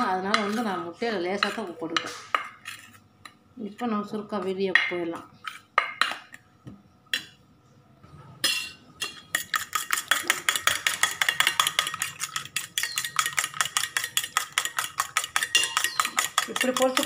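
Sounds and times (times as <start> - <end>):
fork beating egg in metal bowl: 0.0 - 3.0, 8.5 - 17.0.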